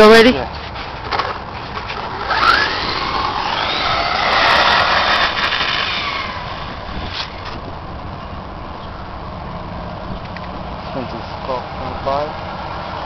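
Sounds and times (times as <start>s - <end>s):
electric motor whining: 1.8s - 7.8s.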